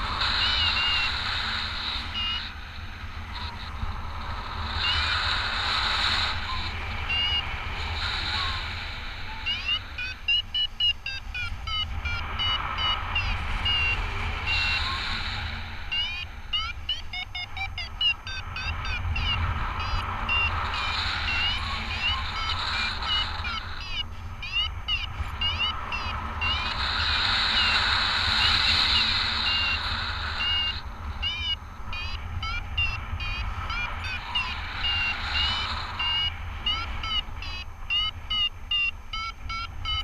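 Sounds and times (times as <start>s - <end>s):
variometer beeping chirps: 0.2s - 1.2s, 1.8s - 2.5s, 6.2s - 7.5s, 9.3s - 40.0s
wind rumble on microphone: 11.2s - 16.9s.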